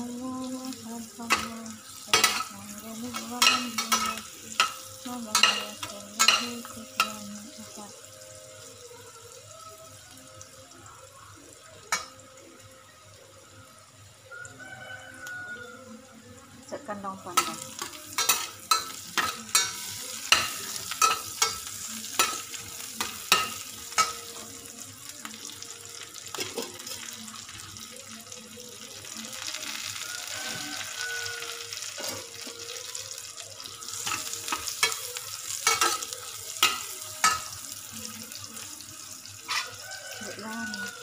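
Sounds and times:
onions sizzling in saucepan: 0.0s - 41.0s
metal spatula clinking on pan: 1.3s - 7.2s, 17.4s - 24.5s, 34.0s - 37.6s.

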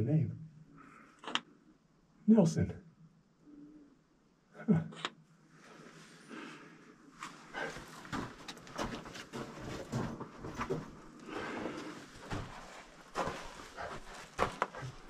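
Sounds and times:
footsteps on rocky floor: 7.2s - 15.0s.

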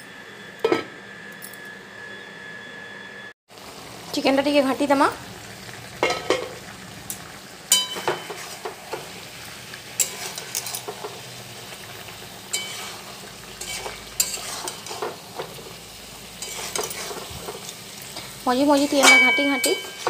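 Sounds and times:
light sizzle: 3.5s - 20.0s
spatula scraping a metal pan: 7.7s - 9.1s, 10.0s - 11.2s, 12.5s - 15.7s, 16.4s - 20.0s.

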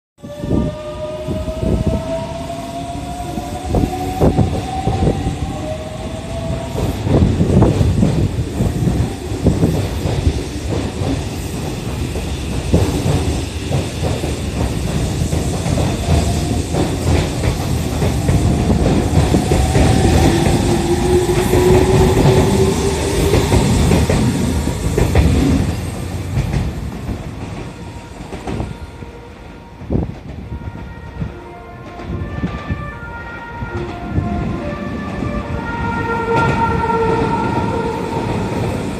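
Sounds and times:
train wheels clattering over joints: 6.7s - 28.7s.

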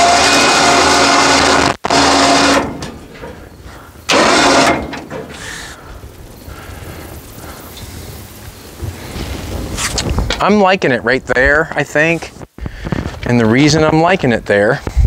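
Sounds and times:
electric winch running: 0.0s - 5.9s.

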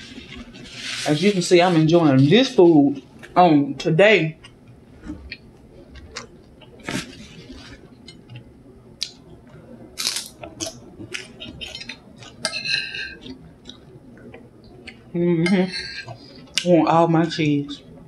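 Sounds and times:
chewing: 4.4s - 15.1s.

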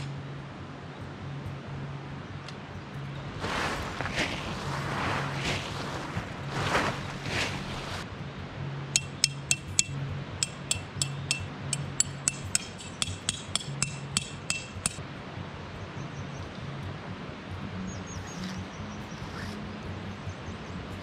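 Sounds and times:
tent pegs being hammered: 9.0s - 15.0s.

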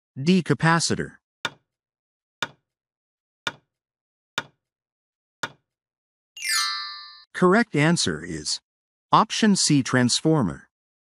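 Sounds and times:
bright chime: 6.4s - 7.3s.

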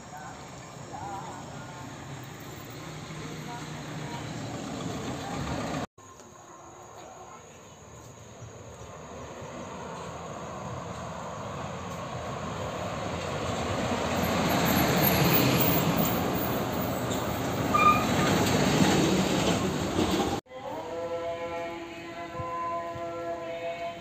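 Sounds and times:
bus passing close by: 0.0s - 5.9s, 8.6s - 20.4s
short high squeak: 17.1s - 18.5s.

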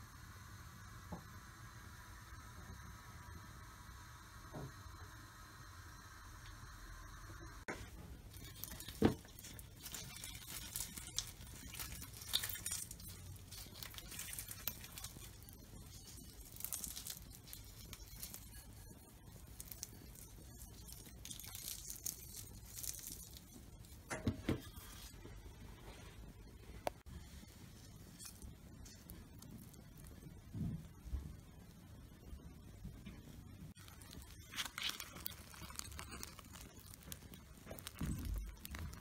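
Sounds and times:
flatbread crackling as torn: 8.3s - 23.6s, 33.8s - 39.0s.

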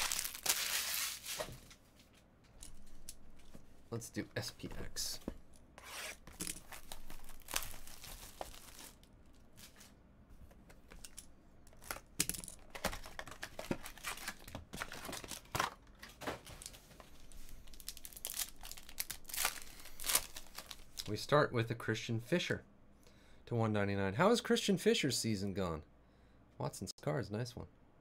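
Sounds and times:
packaging crinkling and tearing: 0.0s - 1.6s, 6.4s - 9.9s, 12.8s - 21.1s
foil pack rustling and tearing: 0.0s - 1.7s, 6.4s - 9.9s, 13.0s - 15.8s, 17.4s - 21.1s.

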